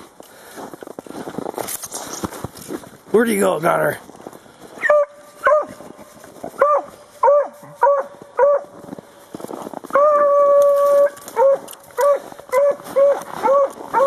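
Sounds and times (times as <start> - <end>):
dog baying: 10.0 - 14.0.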